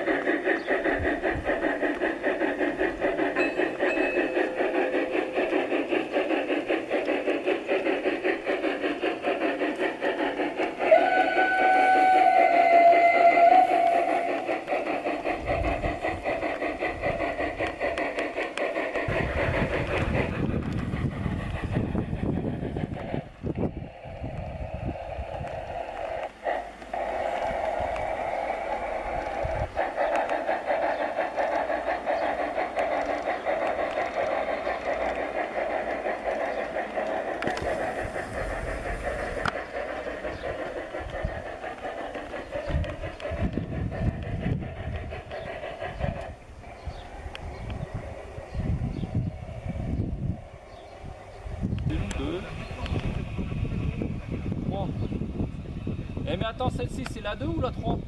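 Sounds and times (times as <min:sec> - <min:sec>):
model steam locomotive chuffing: 0:00.0 - 0:58.0
wind rumble on microphone: 0:19.1 - 0:25.7, 0:42.6 - 0:58.0.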